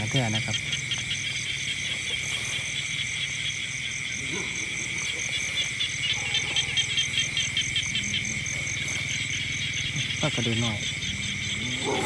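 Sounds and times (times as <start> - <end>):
crickets trilling: 0.0 - 12.0
insects chirping: 0.0 - 12.0
low pulsing drone: 2.9 - 12.0.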